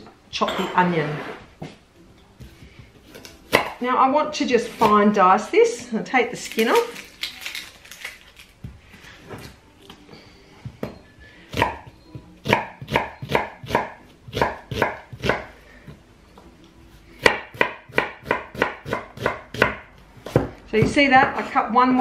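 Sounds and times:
knife chopping on wooden board: 0:02.4 - 0:03.8, 0:10.8 - 0:15.5, 0:17.2 - 0:21.5.

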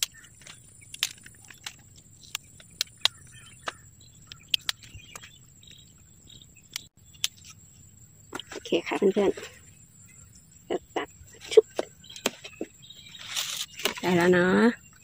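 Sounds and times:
leaves snapping and tearing: 0:00.0 - 0:04.9, 0:13.2 - 0:14.1
high-pitched insect trill: 0:00.1 - 0:15.0.

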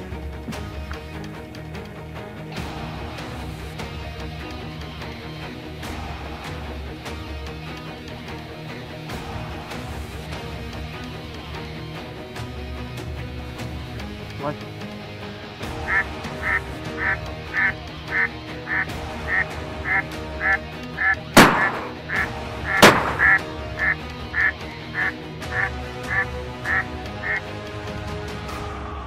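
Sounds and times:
ducks quacking: 0:15.7 - 0:27.6
shotgun shots: 0:21.4 - 0:23.5.

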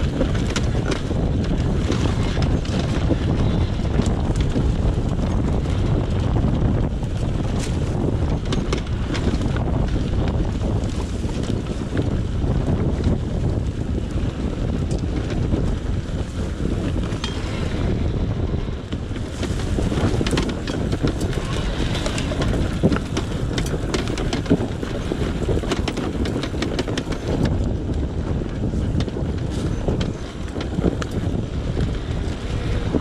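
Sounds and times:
wind buffeting microphone: 0:00.0 - 0:33.0
sharp knocks and clatter: 0:19.2 - 0:27.6.

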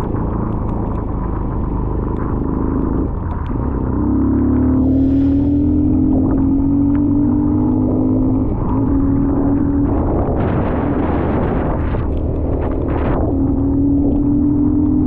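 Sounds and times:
rushing noise: 0:00.0 - 0:14.4
dirt bike engine running: 0:00.0 - 0:15.0.

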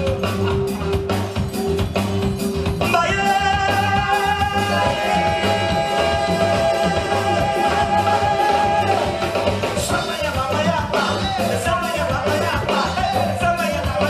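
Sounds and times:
band with hand drum keyboard guitar: 0:00.0 - 0:14.0
man singing: 0:02.8 - 0:14.0.

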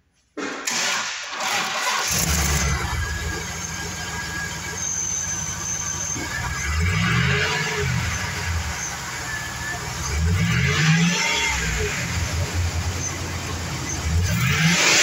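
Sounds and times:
starter cranking engine: 0:01.4 - 0:10.4
engine revving: 0:01.4 - 0:15.0
car engine idling: 0:01.8 - 0:15.0.

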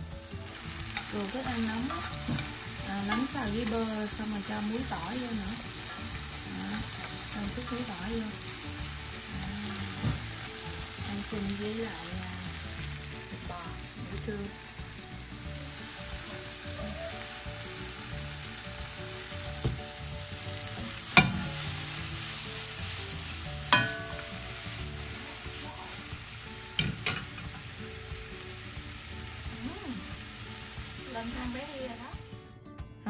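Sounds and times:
butter sizzling in skillets: 0:00.0 - 0:32.4
metal pan clanking on stove grate: 0:01.8 - 0:03.4, 0:21.1 - 0:21.6, 0:23.7 - 0:24.5, 0:26.8 - 0:27.6.

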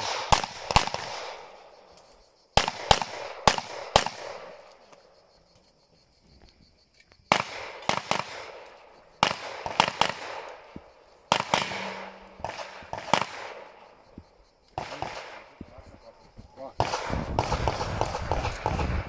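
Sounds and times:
pistol shots echoing: 0:00.0 - 0:01.7, 0:02.6 - 0:04.7, 0:07.3 - 0:14.0, 0:14.8 - 0:15.6, 0:16.8 - 0:19.0.

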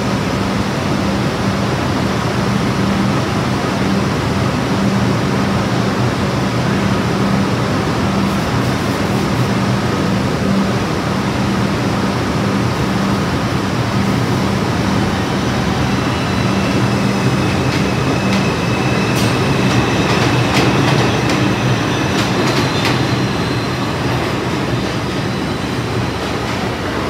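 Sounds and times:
subway train rumble: 0:00.0 - 0:27.0
faint high wheel squeal: 0:14.9 - 0:26.4.

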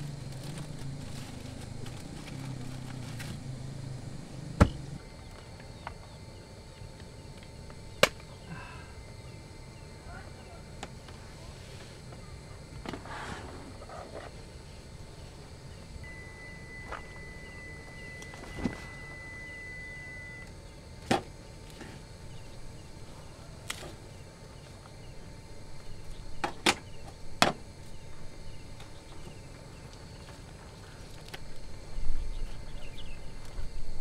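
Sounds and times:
food parcel crackling: 0:00.0 - 0:05.8.

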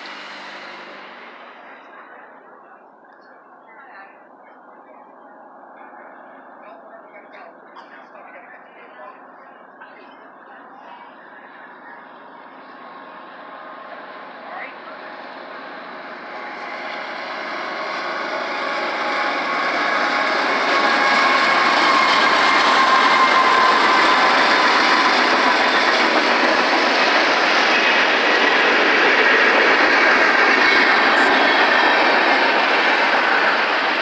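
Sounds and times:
steel wheels on rail: 0:00.0 - 0:02.6, 0:15.3 - 0:34.0
diesel locomotive engine noise: 0:00.0 - 0:34.0.

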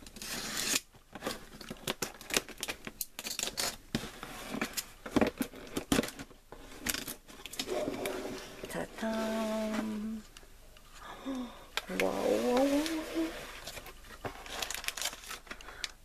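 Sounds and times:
packing tape being cut and pulled: 0:00.0 - 0:03.8.

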